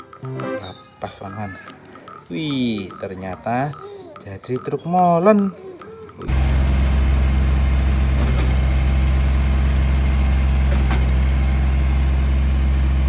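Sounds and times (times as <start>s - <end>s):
diesel truck engine droning: 6.3s - 13.0s.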